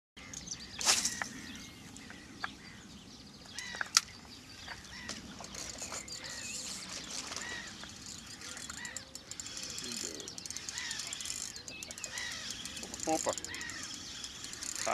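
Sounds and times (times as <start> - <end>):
birds chirping: 0.2 - 14.9
fishing rod cast swishing: 0.8 - 1.4.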